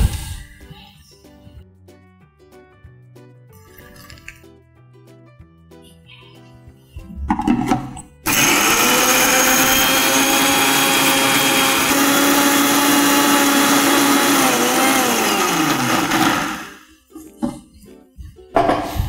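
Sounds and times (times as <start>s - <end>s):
mixer grinder motor running: 8.2s - 16.9s.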